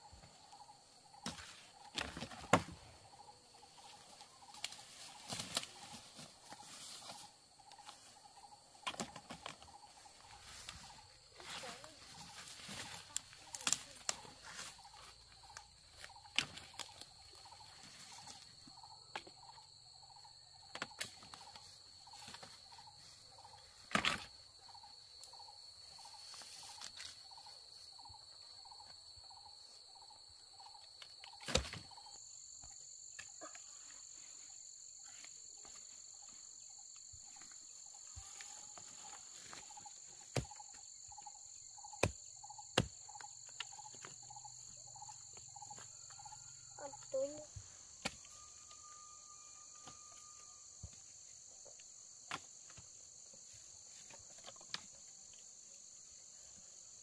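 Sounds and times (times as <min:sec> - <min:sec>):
insects buzzing: 0:00.0 - 0:57.0
dry branches cracking and knocking: 0:13.4 - 0:14.3
higher insect tone: 0:24.6 - 0:51.4.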